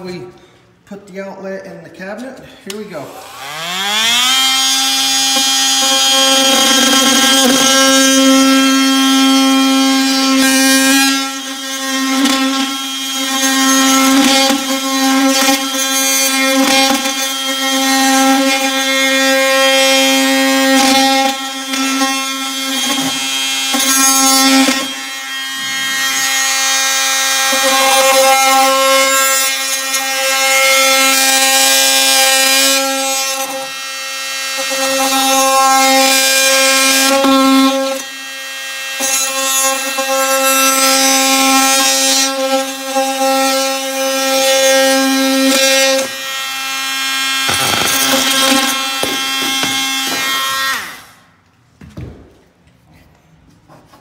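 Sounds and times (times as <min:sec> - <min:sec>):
rough cutting noise: 0:02.0 - 0:11.4, 0:44.5 - 0:51.2
multi-tool buzzing whine: 0:03.0 - 0:51.3.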